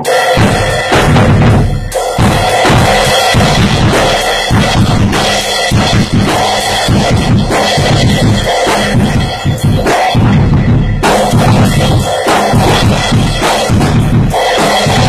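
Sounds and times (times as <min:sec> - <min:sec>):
drum kit playing a groove: 0:00.0 - 0:15.0.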